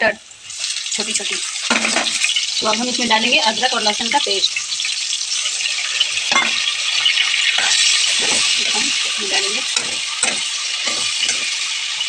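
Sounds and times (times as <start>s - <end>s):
vegetables sizzling in hot oil: 0.0s - 12.0s
spatula stirring and scraping: 4.8s - 12.0s.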